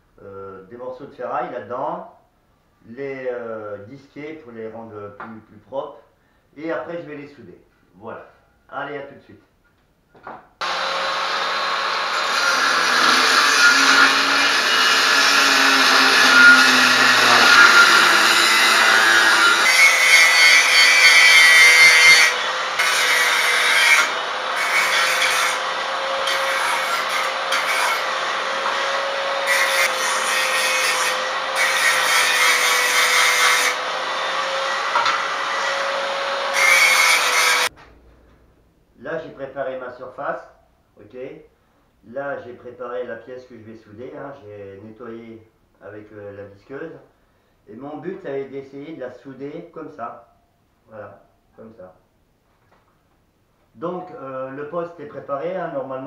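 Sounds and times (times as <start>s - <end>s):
grinder motor whine: 10.6s - 19.7s
angle grinder cutting metal: 10.6s - 37.7s.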